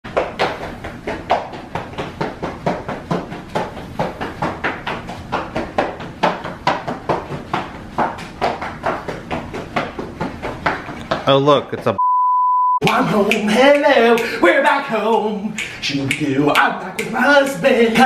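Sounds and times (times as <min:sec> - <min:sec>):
quick hard footsteps: 0:00.1 - 0:11.4.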